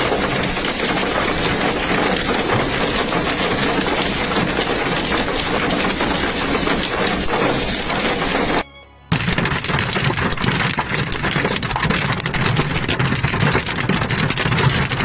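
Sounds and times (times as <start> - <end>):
torrential rain hissing: 0.0 - 8.6.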